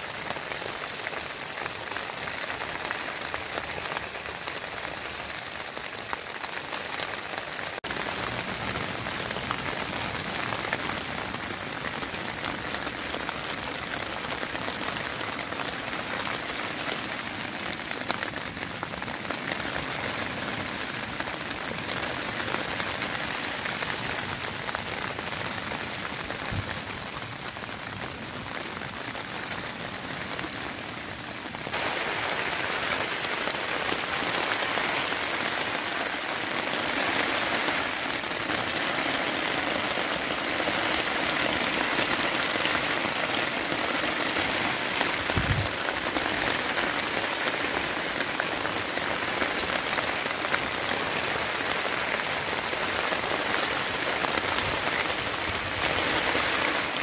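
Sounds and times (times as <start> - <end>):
rain on a tent: 0.0 - 57.0.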